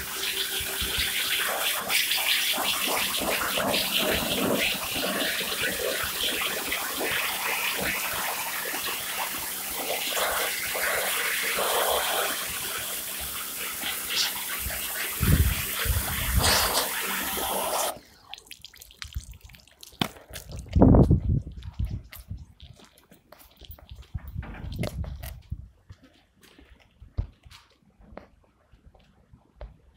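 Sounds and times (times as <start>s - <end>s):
pressure washer spraying water: 0.0s - 18.0s.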